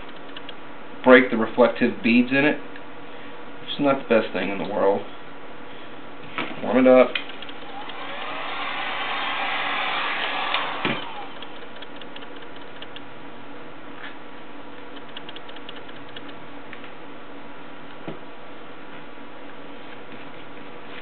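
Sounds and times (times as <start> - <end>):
heat gun blowing hot air: 7.6 - 11.4.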